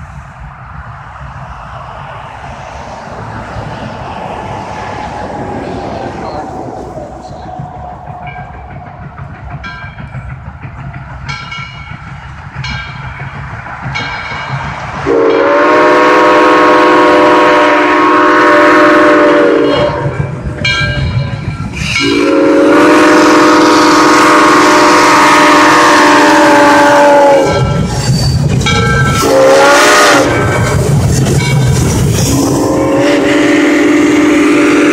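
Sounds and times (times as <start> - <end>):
low rumble of train: 0.0 - 34.9
steam locomotive whistle chord: 15.0 - 27.9, 28.7 - 30.9, 31.6 - 34.9.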